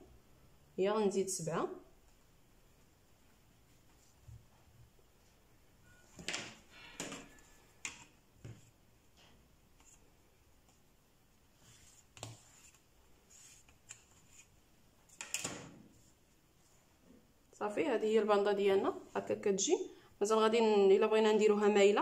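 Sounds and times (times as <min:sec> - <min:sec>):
fabric rustle: 0:09.7 - 0:15.0.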